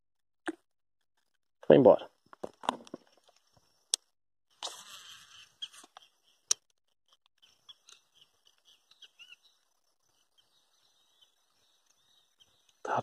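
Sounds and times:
faint bird chirps: 0:04.6 - 0:06.6, 0:07.4 - 0:13.0.

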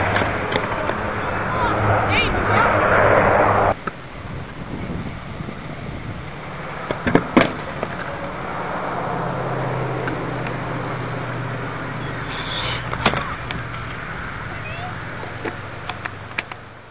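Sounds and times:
scooter clacking on concrete: 0:00.0 - 0:01.7, 0:12.1 - 0:16.7
low hum: 0:00.0 - 0:16.9.

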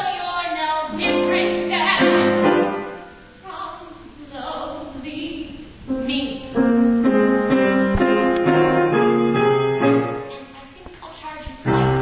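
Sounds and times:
piano sustained chords: 0:00.9 - 0:03.5, 0:05.9 - 0:10.5, 0:11.7 - 0:12.0.

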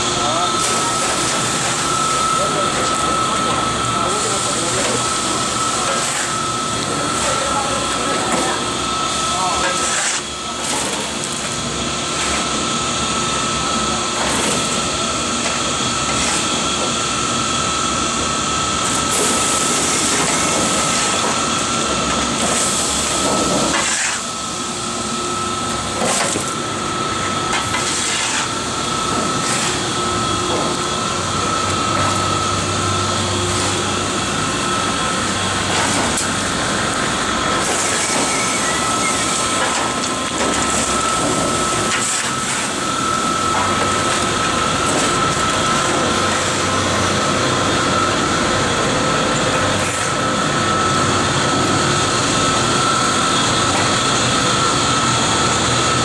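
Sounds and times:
belt conveyor running: 0:00.0 - 0:56.0.

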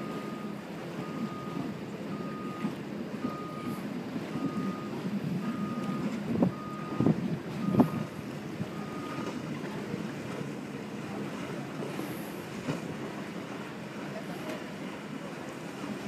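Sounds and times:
choppy water: 0:00.0 - 0:16.0.

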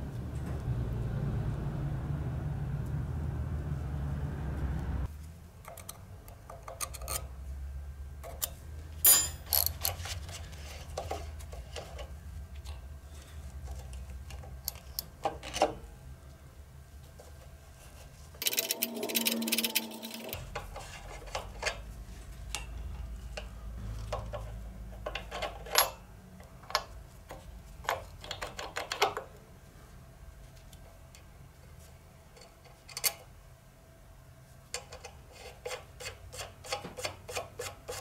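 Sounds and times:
metal tool clinking and tapping: 0:09.1 - 0:10.0.

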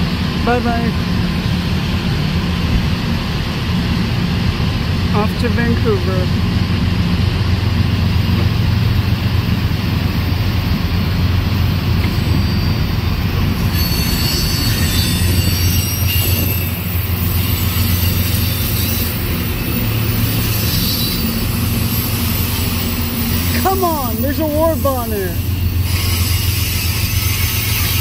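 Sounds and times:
train wheels rumbling on rail: 0:00.0 - 0:28.0
high wheel squeal: 0:12.0 - 0:28.0.

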